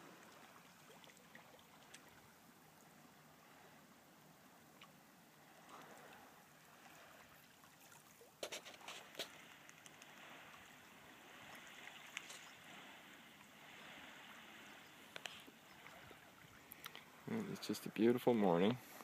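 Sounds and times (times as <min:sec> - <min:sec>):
water trickling over rocks: 0:00.0 - 0:03.0, 0:05.7 - 0:12.7, 0:15.0 - 0:17.6.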